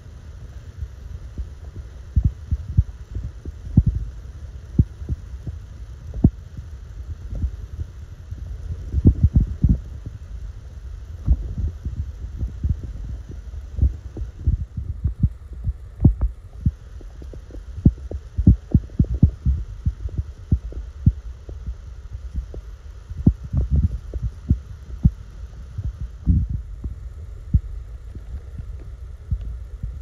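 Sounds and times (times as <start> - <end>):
faint steady hiss: 0.0 - 30.0.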